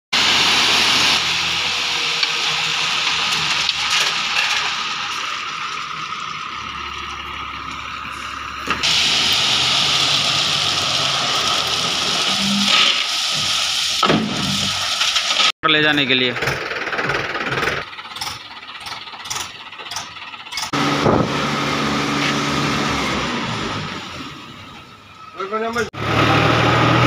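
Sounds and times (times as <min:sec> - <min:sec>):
stones pouring from truck: 0:00.2 - 0:05.8, 0:08.6 - 0:15.5
truck engine running: 0:00.2 - 0:12.4, 0:15.7 - 0:27.0.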